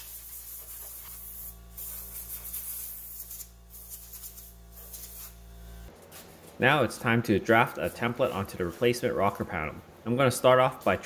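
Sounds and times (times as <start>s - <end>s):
air blow gun hissing: 0.0s - 5.4s.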